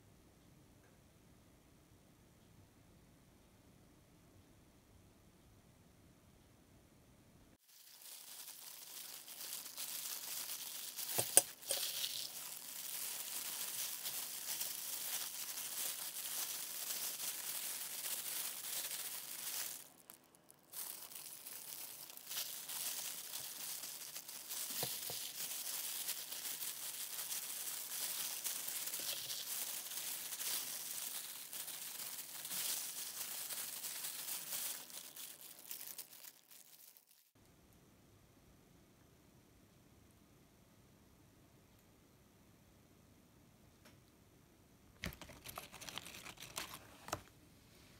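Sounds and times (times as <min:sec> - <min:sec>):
plastic gloves crinkling: 0:07.6 - 0:37.4, 0:45.0 - 0:47.3.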